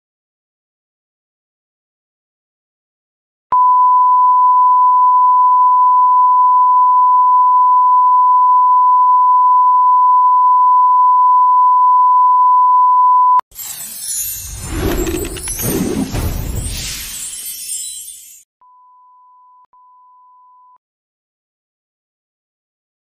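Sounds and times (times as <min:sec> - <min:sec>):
steady test tone beep: 0:03.5 - 0:13.4.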